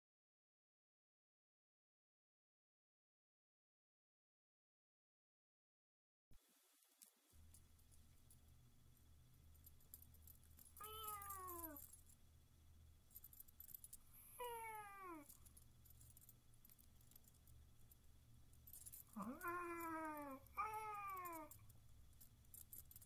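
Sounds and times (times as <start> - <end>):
faint high jingling: 9.4 - 12.2, 12.8 - 23.0
cat meowing: 10.8 - 11.8, 14.2 - 15.3, 19.1 - 21.6.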